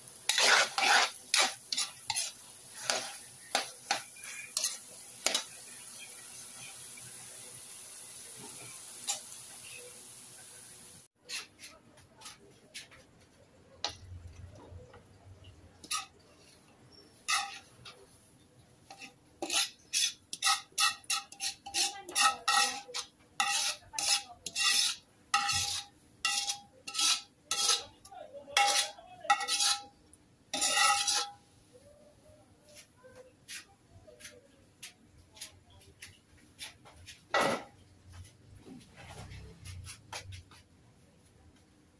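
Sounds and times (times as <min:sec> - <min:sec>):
metal spatula scraping wok: 0:00.1 - 0:09.9, 0:11.2 - 0:12.9, 0:15.8 - 0:31.5.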